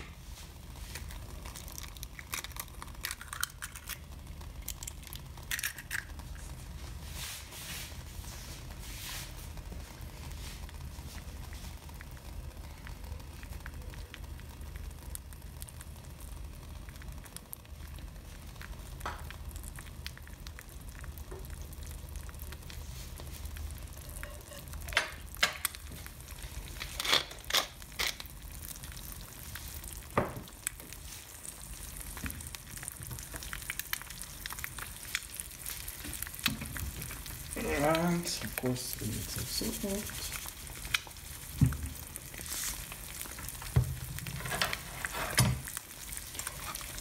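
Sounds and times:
egg sizzling in a pan: 0.0 - 47.0.

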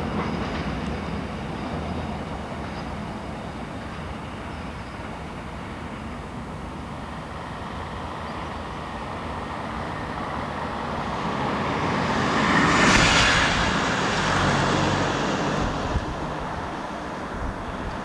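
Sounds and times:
freight train rumble: 0.0 - 18.0
road vehicle passing: 7.4 - 18.0.

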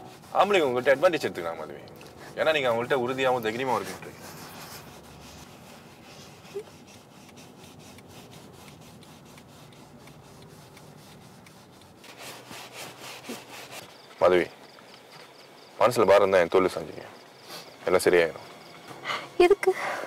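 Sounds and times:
car cabin hum and hiss: 0.0 - 15.2.

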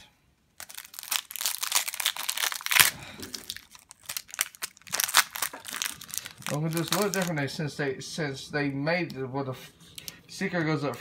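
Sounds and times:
foil wrapper crinkling and tearing: 0.6 - 7.5.

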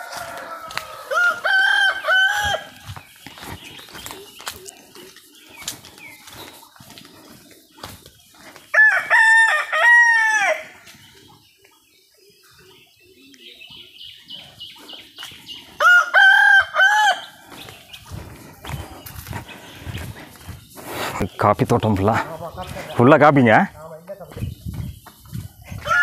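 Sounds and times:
rooster crowing: 0.0 - 2.8, 8.7 - 10.8, 15.8 - 17.4, 25.8 - 26.0.

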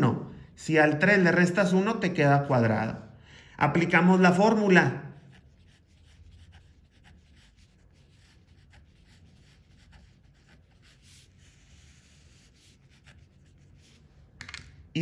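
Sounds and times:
marker pen scratching on paper: 4.1 - 14.6.

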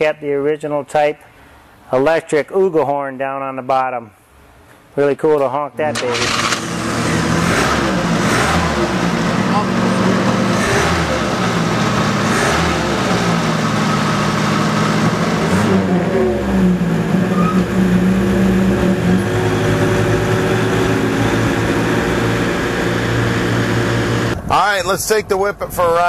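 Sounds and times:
car engine running: 6.0 - 26.0.

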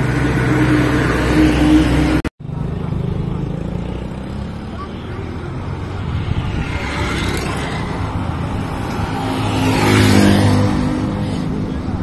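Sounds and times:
road traffic: 0.0 - 12.0
vehicle passing close by: 3.3 - 12.0.

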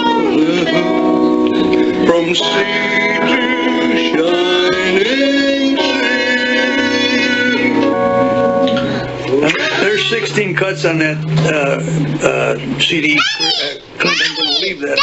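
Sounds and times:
child singing into toy microphone: 0.0 - 1.1, 4.0 - 7.8, 9.4 - 10.3, 13.2 - 15.0
guitar accompaniment: 0.0 - 12.8
song playing: 0.0 - 12.8.

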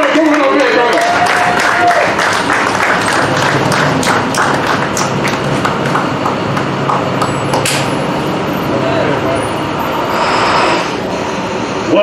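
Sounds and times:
crowd clapping: 0.0 - 7.9.

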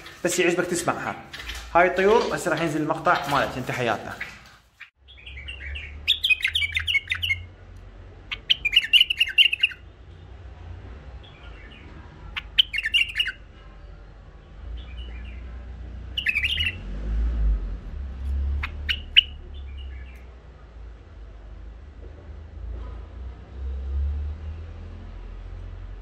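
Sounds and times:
bird singing chirpy phrases: 0.7 - 7.6, 8.2 - 10.0, 11.1 - 16.9, 18.3 - 20.4.

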